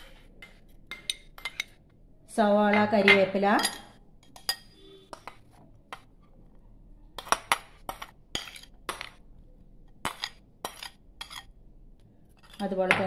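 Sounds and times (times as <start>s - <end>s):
metal spoon clinking on ceramic: 0.4s - 1.8s, 2.7s - 5.4s, 7.2s - 9.2s, 10.0s - 11.5s.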